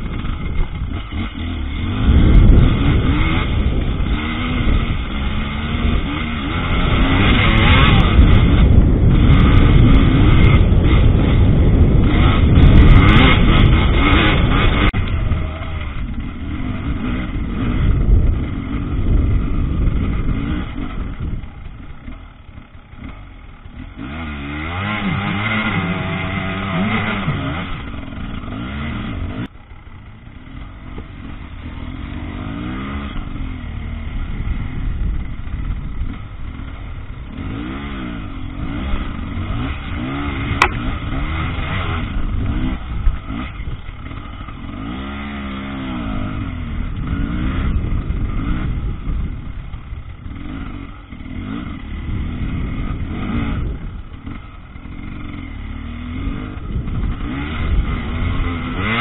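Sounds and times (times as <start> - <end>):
motorcycle engine revving: 0.0 - 59.0
sharp click: 40.6 - 40.9.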